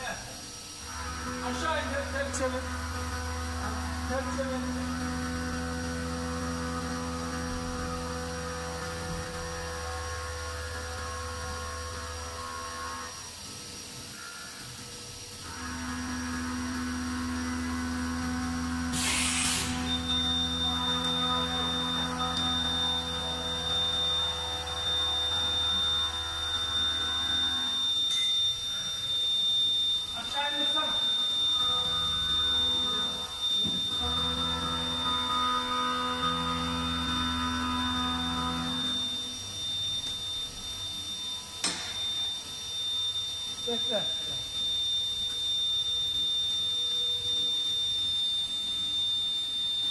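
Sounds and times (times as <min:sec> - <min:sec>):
machining center motors humming: 0:00.0 - 0:49.9
burst of hiss: 0:18.9 - 0:20.0
thin high tone: 0:19.0 - 0:49.9.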